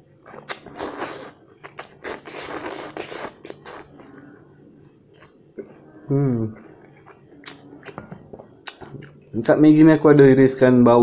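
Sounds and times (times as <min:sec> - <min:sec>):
wet chewing clicks: 0:00.3 - 0:04.2, 0:06.8 - 0:09.2
person slurping noodles: 0:00.4 - 0:04.1.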